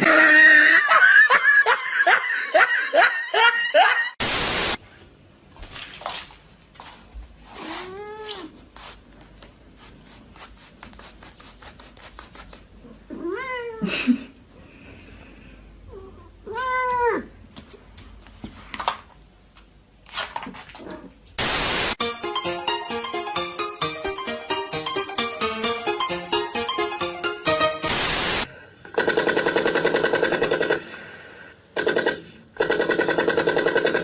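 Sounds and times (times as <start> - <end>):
loud static hiss: 4.2 - 4.8, 21.4 - 22.0, 27.8 - 28.5
cat meowing: 13.1 - 13.8.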